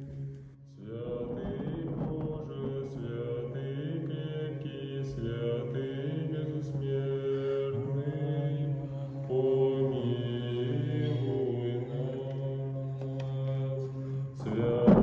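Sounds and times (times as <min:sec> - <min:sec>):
voices chanting: 0:00.0 - 0:15.0.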